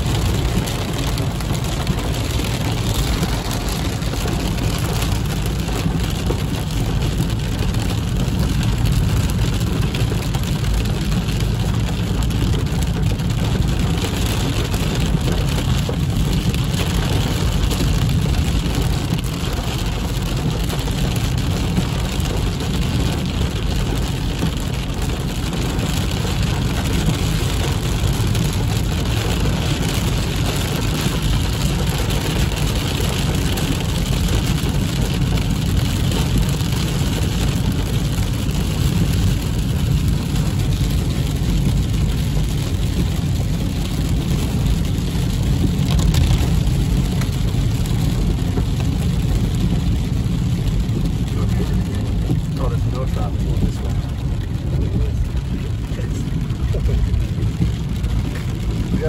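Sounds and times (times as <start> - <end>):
car engine: 0.0 - 59.0
heavy rain on car roof: 0.0 - 59.0
tyres rumbling on wet road: 0.0 - 59.0.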